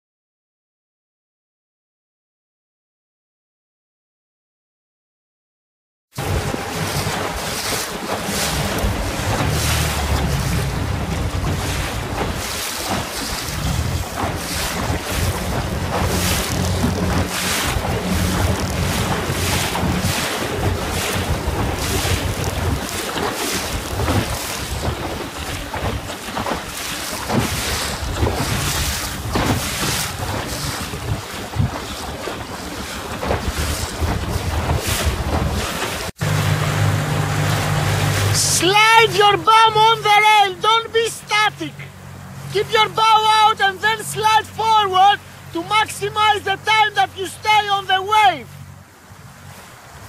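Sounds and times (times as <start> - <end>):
wind buffeting microphone: 6.2 - 39.1
waves splashing: 6.2 - 50.0
low rumble: 8.5 - 12.5, 13.4 - 22.8.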